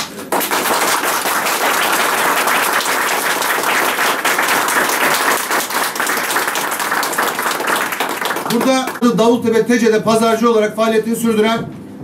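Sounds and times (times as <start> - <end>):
people applauding: 0.0 - 9.0.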